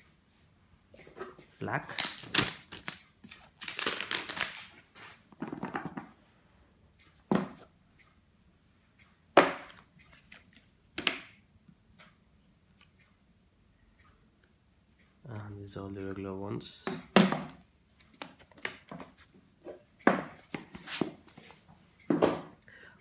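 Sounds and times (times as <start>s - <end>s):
packaging crinkling and rustling: 1.8s - 4.8s.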